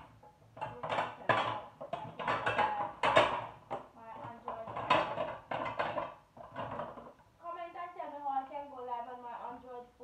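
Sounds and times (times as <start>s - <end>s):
dishes clattering: 0.0s - 7.2s
pots knocking: 0.0s - 7.2s.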